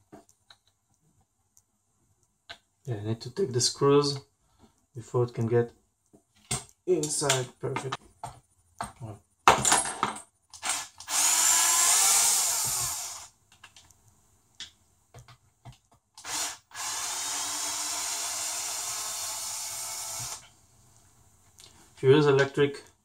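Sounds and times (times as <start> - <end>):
cordless drill whine: 10.6 - 13.3, 16.2 - 20.4.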